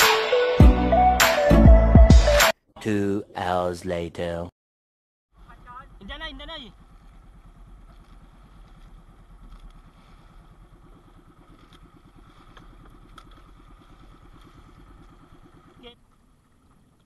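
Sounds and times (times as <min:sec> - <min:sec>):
small boat engine running: 0:05.4 - 0:17.0.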